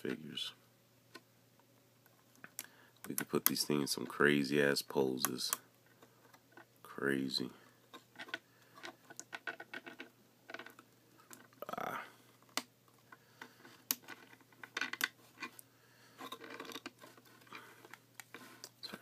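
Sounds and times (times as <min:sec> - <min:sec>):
plastic handling and rubbing: 0:05.8 - 0:19.0.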